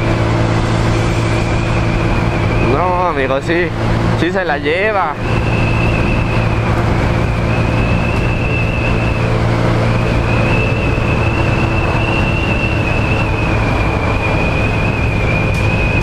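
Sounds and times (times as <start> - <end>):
scooter engine hum: 0.0 - 16.0
wind on microphone: 5.2 - 16.0.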